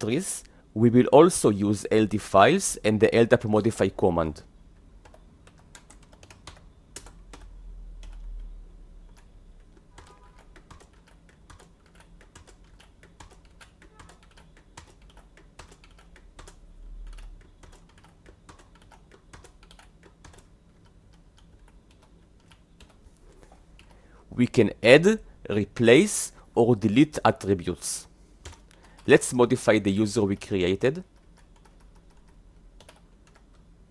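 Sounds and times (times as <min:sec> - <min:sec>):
keyboard typing clicks: 0:05.0 - 0:08.5, 0:09.1 - 0:23.0, 0:31.0 - 0:33.7.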